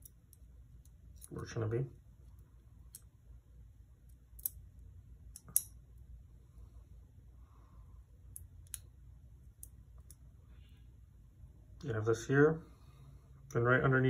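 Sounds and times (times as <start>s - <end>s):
small metal parts clicking: 4.1s - 4.6s.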